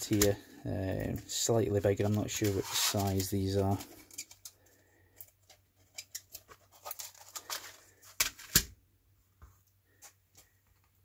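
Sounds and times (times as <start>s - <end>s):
tape clicks and crinkly rustles: 0.0s - 8.8s.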